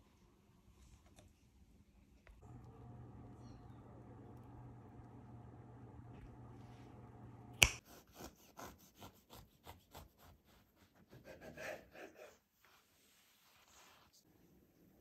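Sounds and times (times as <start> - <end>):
knife sawing through cake: 7.8 - 12.4.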